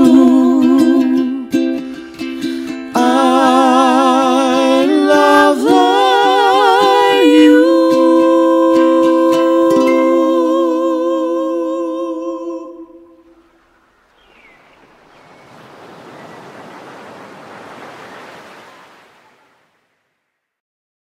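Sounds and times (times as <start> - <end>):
ocean waves: 12.5 - 20.4.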